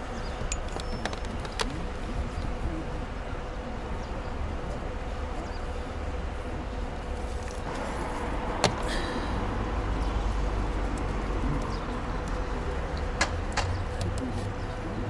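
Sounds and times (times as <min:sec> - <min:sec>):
distant traffic: 0:00.0 - 0:15.0
wind: 0:00.0 - 0:15.0.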